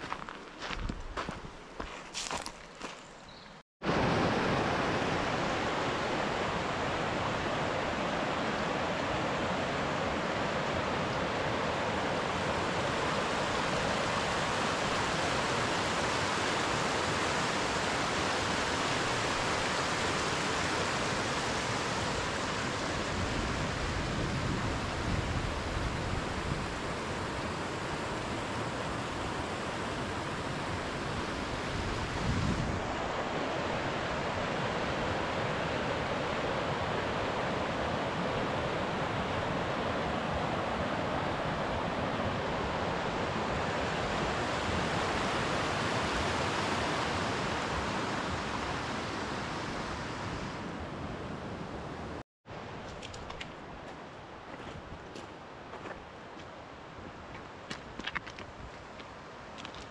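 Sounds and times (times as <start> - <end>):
stream rushing over stones: 3.8 - 50.5
wind buffeting microphone: 30.4 - 33.2.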